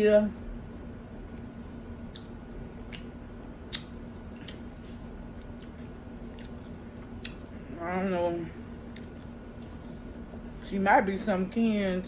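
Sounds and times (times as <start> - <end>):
person chewing food: 0.6 - 7.6, 8.8 - 10.2.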